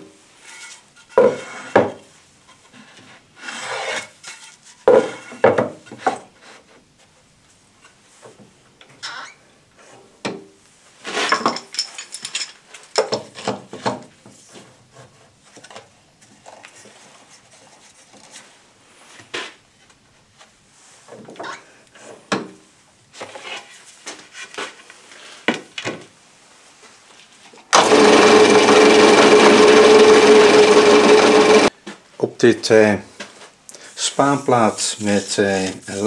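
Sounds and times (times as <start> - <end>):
drill press motor humming: 27.8 - 31.7.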